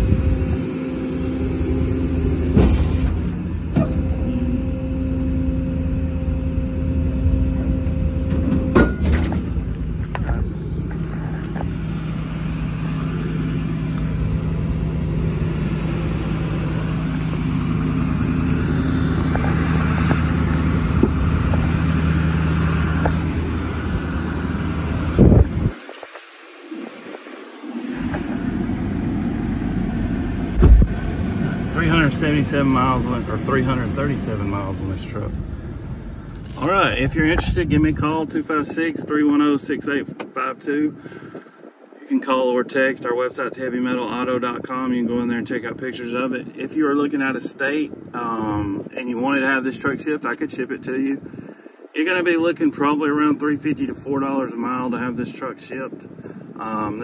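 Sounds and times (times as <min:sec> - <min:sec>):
diesel engine idling: 0:00.0 - 0:25.8, 0:26.5 - 0:38.5
engine knocks: 0:07.4 - 0:25.8, 0:28.0 - 0:37.8.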